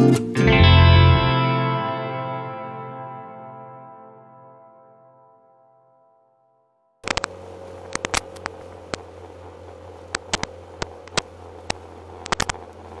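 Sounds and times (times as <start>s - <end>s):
steady low hum: 7.0s - 13.0s.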